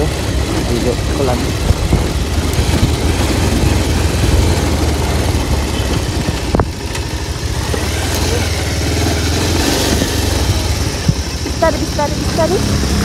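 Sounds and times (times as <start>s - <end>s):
motorbike engine rumble: 0.0s - 13.0s.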